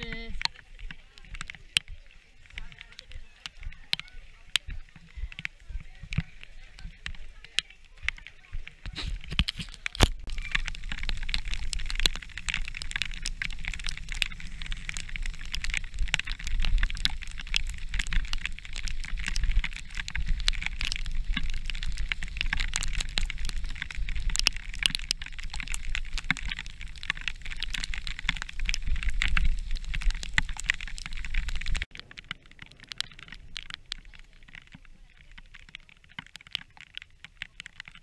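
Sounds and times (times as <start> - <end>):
rain: 0.0 - 38.0
tyres crackling on mud: 0.0 - 38.0.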